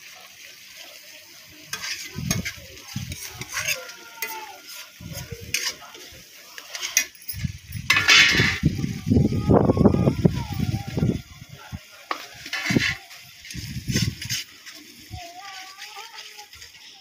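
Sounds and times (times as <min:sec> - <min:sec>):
paste sizzling: 0:00.0 - 0:17.0
spoon scraping metal pan: 0:01.7 - 0:08.7, 0:12.1 - 0:15.9.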